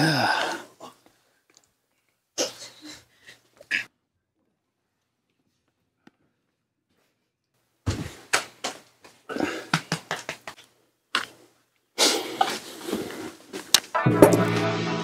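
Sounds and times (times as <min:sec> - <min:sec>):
hand claps: 0:08.3 - 0:10.7.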